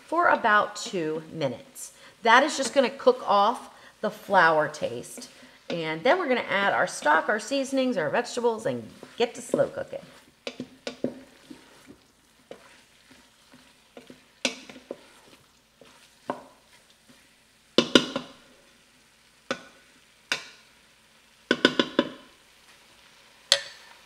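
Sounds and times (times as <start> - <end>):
food sizzling: 0.0 - 24.0
spatula scraping in metal pot: 4.1 - 17.3
spatula knocking on metal: 17.8 - 18.3, 21.5 - 22.2.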